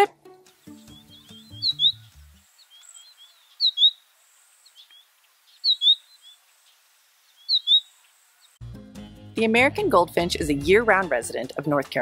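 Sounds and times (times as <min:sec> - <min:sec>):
goldfinch calling: 0:00.8 - 0:04.0, 0:04.7 - 0:06.4, 0:07.4 - 0:07.9
bird twittering softly: 0:00.9 - 0:04.0, 0:04.6 - 0:08.6.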